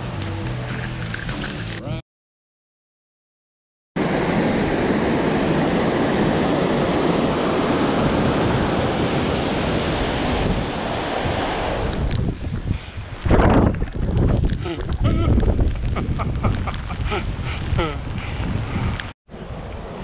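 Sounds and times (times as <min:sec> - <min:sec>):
wind buffeting microphone: 0:05.5 - 0:19.2.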